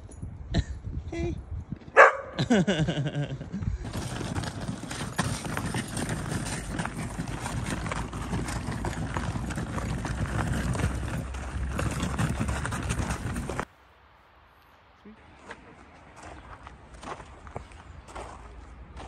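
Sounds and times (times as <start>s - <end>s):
dog barking: 2.0s - 2.4s
footsteps crunching on snow: 15.3s - 19.0s.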